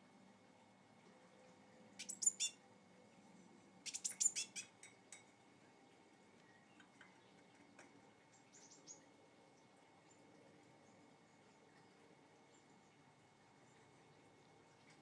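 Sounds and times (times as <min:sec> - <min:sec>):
blue tit chirping: 0:02.0 - 0:02.6, 0:03.9 - 0:04.7.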